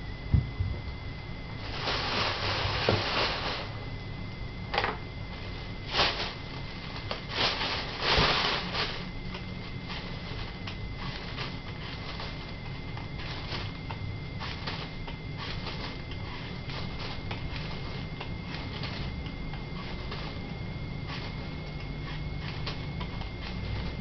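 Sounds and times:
plastic bags crinkling: 1.6 - 3.9, 4.8 - 13.8.

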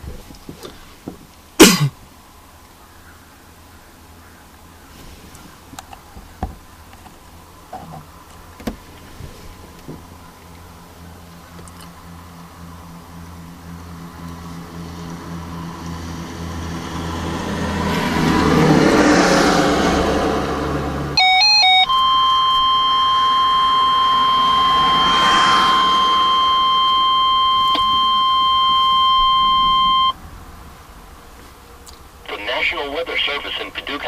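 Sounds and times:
road traffic: 0.0 - 34.0
low hum: 9.5 - 31.0
warbling data tones: 21.2 - 30.2
warning alarm tone: 21.2 - 30.2.

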